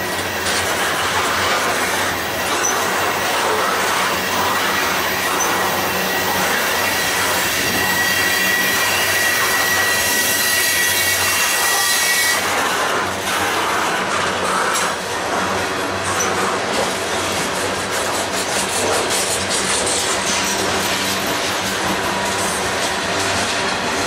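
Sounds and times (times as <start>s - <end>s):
train wheel and rail noise: 0.0s - 24.0s
high wheel squeal: 1.6s - 12.5s.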